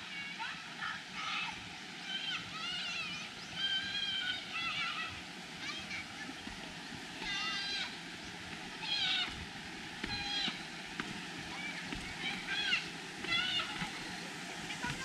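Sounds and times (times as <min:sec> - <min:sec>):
mountain stream rushing: 0:00.0 - 0:15.0
distant children shouting: 0:00.3 - 0:08.1, 0:08.7 - 0:10.8, 0:11.4 - 0:15.0.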